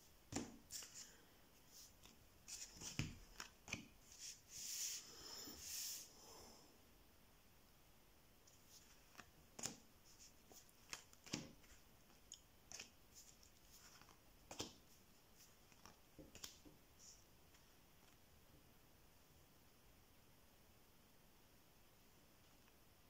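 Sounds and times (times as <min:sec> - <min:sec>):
playing cards flicking and tapping: 0:00.3 - 0:01.0, 0:02.0 - 0:04.0, 0:08.8 - 0:09.9, 0:10.5 - 0:14.9, 0:15.6 - 0:16.8.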